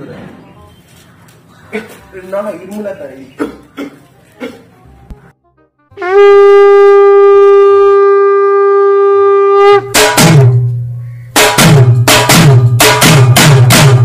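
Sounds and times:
long horn-like note: 5.9 - 10.5
drum beat with deep bass: 9.8 - 14.0.

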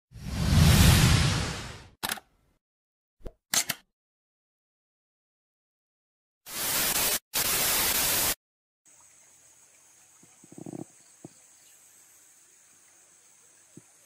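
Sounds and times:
loud static hiss bursts: 6.5 - 8.4.

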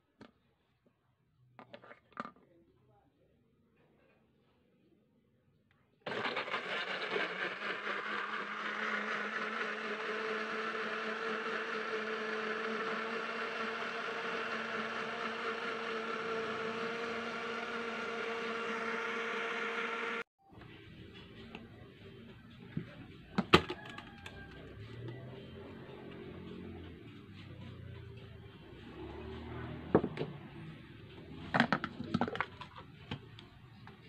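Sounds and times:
blender running: 6.1 - 20.3, 28.7 - 30.2.

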